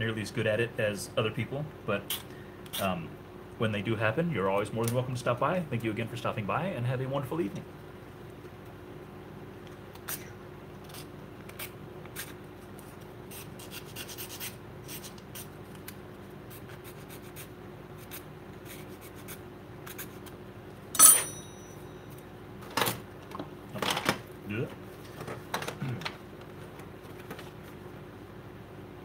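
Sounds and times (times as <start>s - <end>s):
metal tool clattering on bench: 21.0s - 21.8s.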